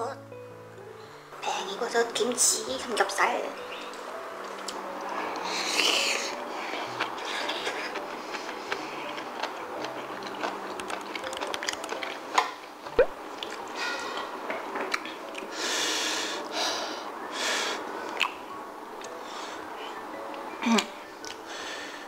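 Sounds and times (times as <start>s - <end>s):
wet chewing: 6.7s - 13.8s, 18.1s - 18.4s.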